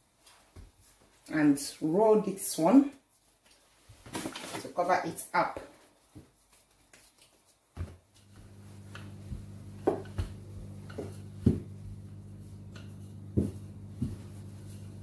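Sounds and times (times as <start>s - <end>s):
rolling pin knocking on dough: 7.8s - 14.8s
steady low hum: 8.2s - 15.0s.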